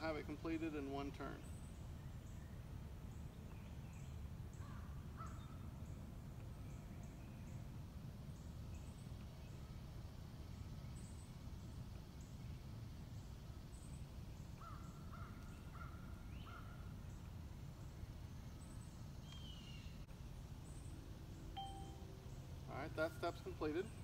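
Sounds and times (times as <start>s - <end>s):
bird calls: 18.6s - 20.0s
faint high chirps: 21.6s - 22.4s.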